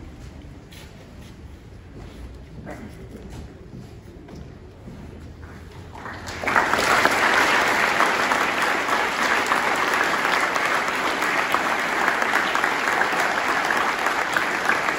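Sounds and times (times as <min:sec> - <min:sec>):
large audience clapping: 0:05.8 - 0:14.9.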